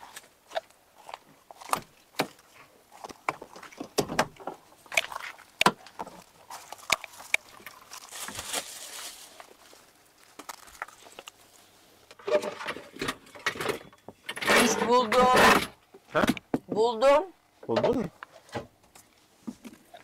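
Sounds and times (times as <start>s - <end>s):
short rustle: 6.1s - 11.8s.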